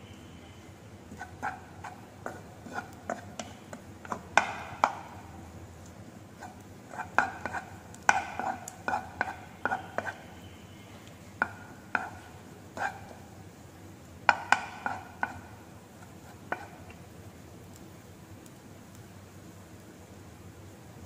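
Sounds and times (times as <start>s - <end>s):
spatula scraping frying pan: 1.0s - 5.2s, 6.2s - 10.5s, 11.4s - 13.3s, 14.3s - 17.0s
spatula knocking against pan: 1.2s - 5.3s, 6.4s - 10.2s, 11.4s - 13.1s, 14.3s - 15.6s, 16.5s - 16.9s.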